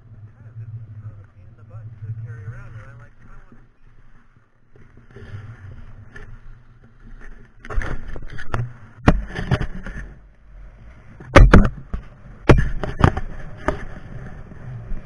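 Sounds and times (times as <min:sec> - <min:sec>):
skis scraping over snow: 0:00.3 - 0:04.2
sharp knocks: 0:11.2 - 0:13.3.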